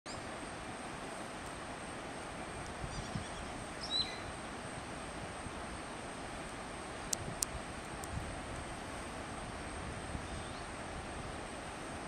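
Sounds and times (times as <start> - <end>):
river flowing over rocks: 0.1 - 12.0
high bird chirps: 2.9 - 4.2.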